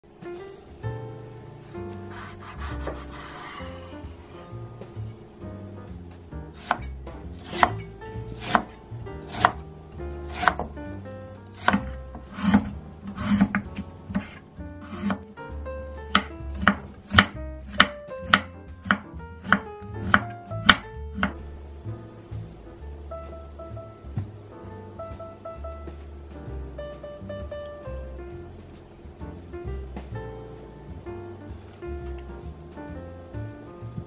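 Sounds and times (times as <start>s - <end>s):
soft background music: 0.0s - 34.0s
knife chopping on wooden board: 2.0s - 3.9s, 6.5s - 9.6s, 10.3s - 10.8s, 11.5s - 15.2s, 16.1s - 21.4s.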